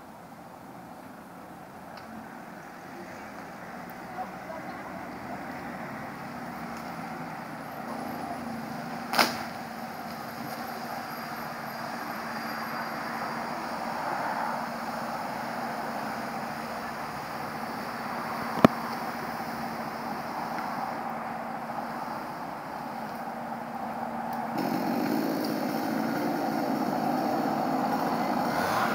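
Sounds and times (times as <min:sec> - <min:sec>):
street traffic engine hum: 0:00.0 - 0:28.9
vehicle passing: 0:02.1 - 0:28.9.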